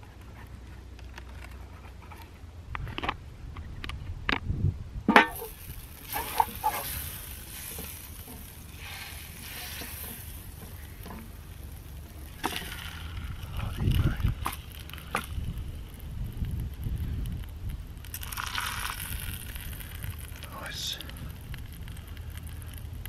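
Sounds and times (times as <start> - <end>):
butter sizzling in a pan: 5.3 - 23.0.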